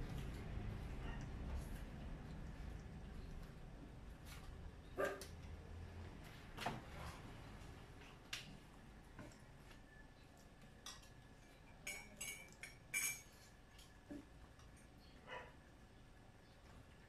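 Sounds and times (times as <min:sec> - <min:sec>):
cutlery clinking on plate: 0:10.9 - 0:13.9.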